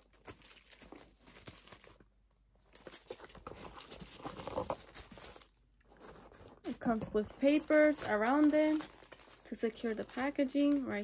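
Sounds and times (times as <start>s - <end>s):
tissue paper rustling: 2.7s - 11.0s.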